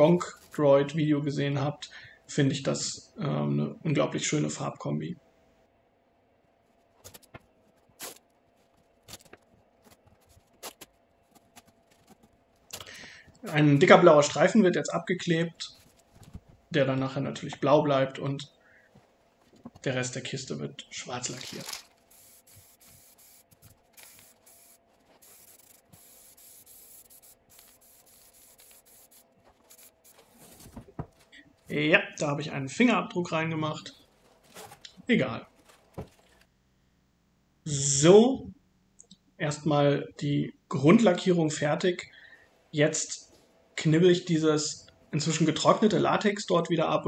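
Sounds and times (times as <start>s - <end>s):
masking tape unrolling: 21.3s - 30.6s
aerosol spray can hissing: 22.1s - 30.2s.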